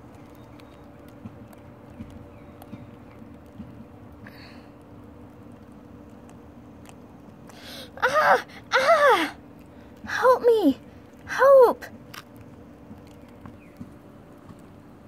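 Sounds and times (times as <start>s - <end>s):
high voice wailing sobs: 7.8s - 9.4s.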